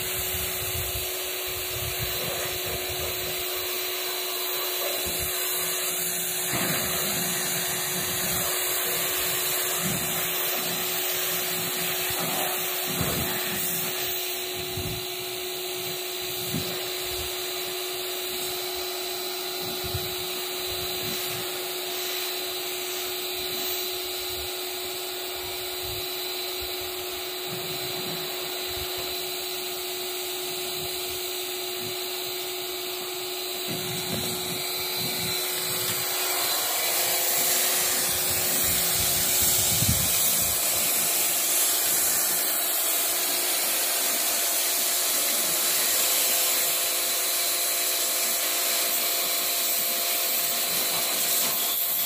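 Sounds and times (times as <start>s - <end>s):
hissing water jet: 0.0s - 14.6s, 33.7s - 47.0s
pressure washer motor hum: 0.0s - 52.0s.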